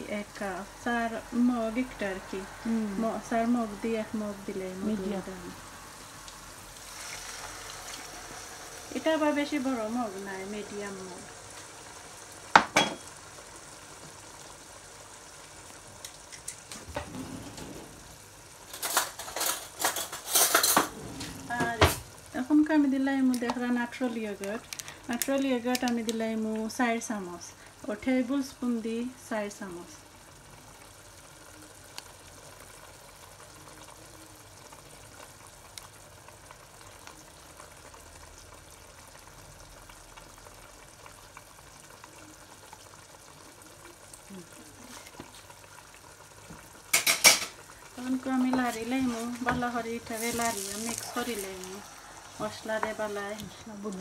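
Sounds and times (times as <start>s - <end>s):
curry sizzling and bubbling: 0.0s - 54.0s
kitchen clatters and scrapes: 16.3s - 22.1s, 46.9s - 47.6s, 48.4s - 53.3s.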